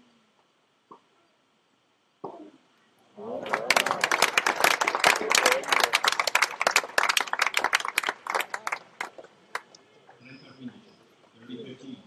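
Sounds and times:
spectators applauding: 3.2s - 9.7s.

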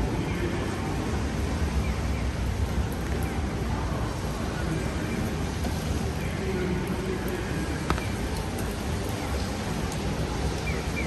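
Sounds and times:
traffic rumble: 0.0s - 11.0s
voices of passers-by: 0.0s - 11.0s.

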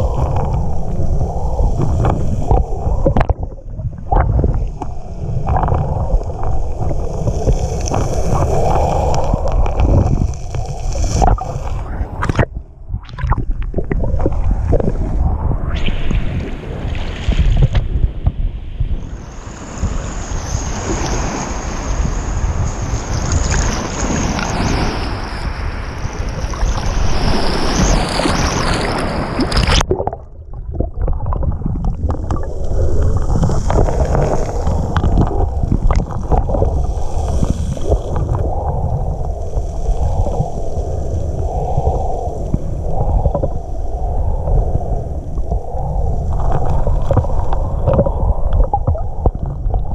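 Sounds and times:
low rumble: 0.0s - 20.6s, 29.6s - 49.9s
muffled underwater rumble: 0.0s - 20.6s, 28.7s - 49.9s
water sloshing and gurgling: 0.0s - 49.9s.

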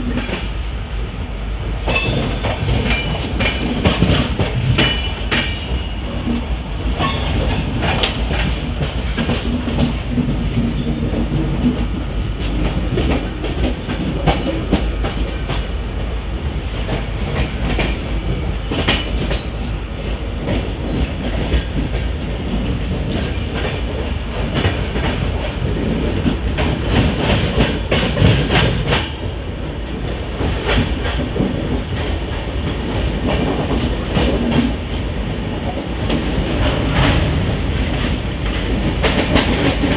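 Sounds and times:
train rumbling: 0.0s - 39.9s
wheels clicking over rail joints: 1.8s - 15.8s.

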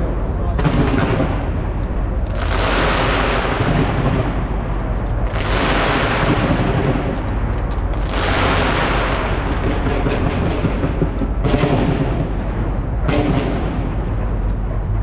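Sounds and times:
fireworks booming and crackling: 0.0s - 15.0s.

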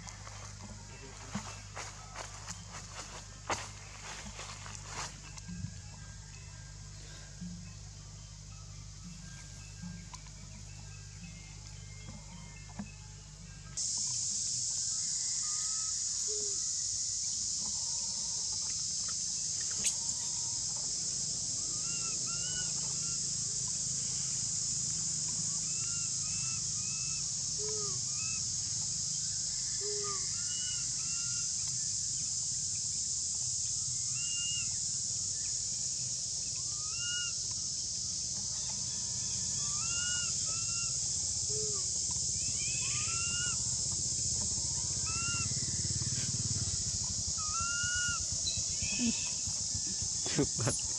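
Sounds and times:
high-pitched insect drone: 0.0s - 50.9s
infant monkey squeaky calls: 38.9s - 43.7s, 44.8s - 45.6s, 47.3s - 49.6s.

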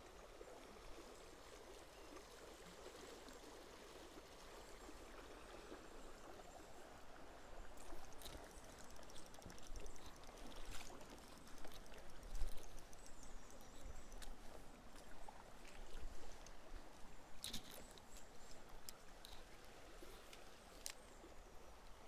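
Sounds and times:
river flowing over stones: 0.0s - 22.0s
fishing reel ticking: 7.8s - 14.4s.

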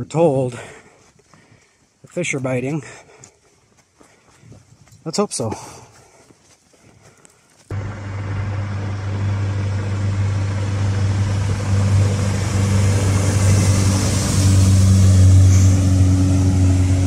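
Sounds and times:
motorboat engine droning: 7.7s - 17.0s
spray wake hissing: 9.1s - 16.0s.

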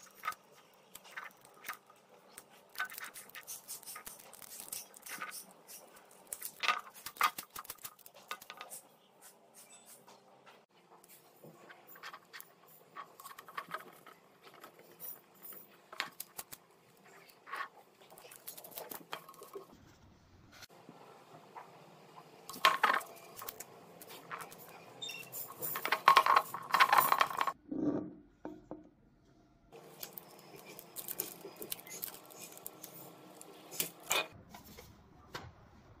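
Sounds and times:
rubbing and scraping of can: 0.0s - 10.0s.

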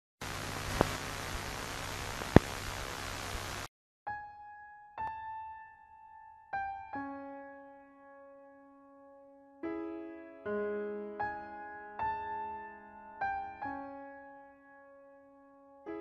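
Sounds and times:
steady hiss: 0.2s - 3.7s
slow piano notes: 4.1s - 16.0s.

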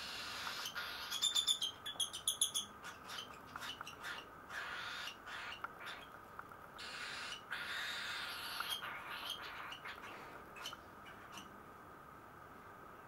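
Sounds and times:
baby birds hissing begging calls: 0.0s - 1.4s, 4.0s - 6.0s, 6.8s - 10.7s.

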